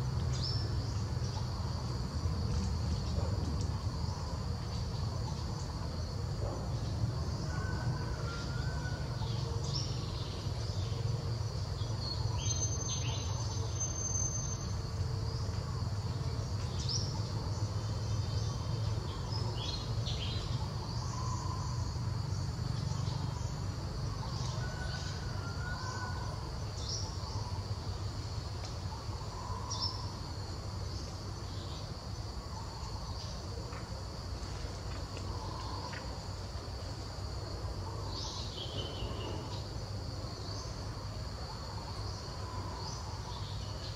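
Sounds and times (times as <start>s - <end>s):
insects chirring: 0.0s - 43.9s.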